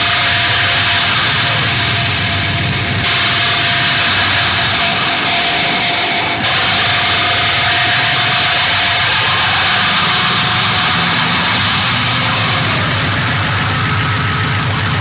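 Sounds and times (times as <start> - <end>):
harsh hiss-like noise: 0.0 - 15.0
low rumble: 0.6 - 15.0.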